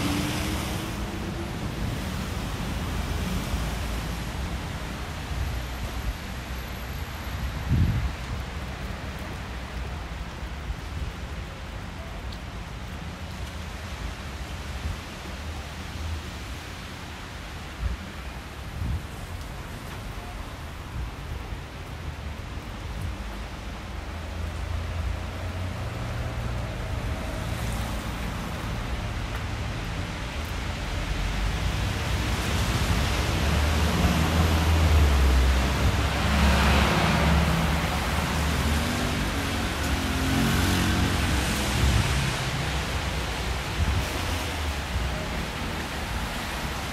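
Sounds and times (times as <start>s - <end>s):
low traffic rumble: 0.0s - 46.9s
hiss of falling wet snow: 7.5s - 46.9s.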